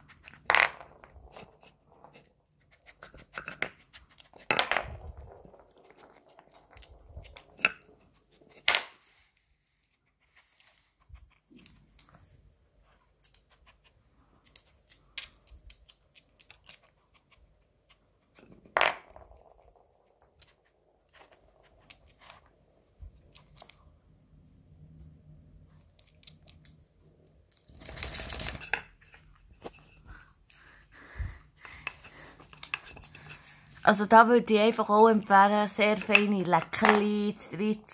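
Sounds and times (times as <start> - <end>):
wooden pegs clicking and knocking: 35.9 - 37.3.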